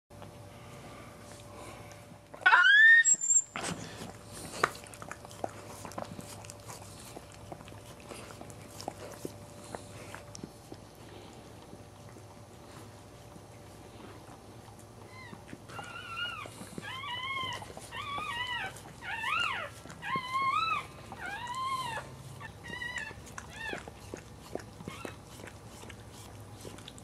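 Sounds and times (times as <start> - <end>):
puppy squealing: 2.4 - 3.6, 15.0 - 23.9
wet licking clicks: 4.4 - 12.3.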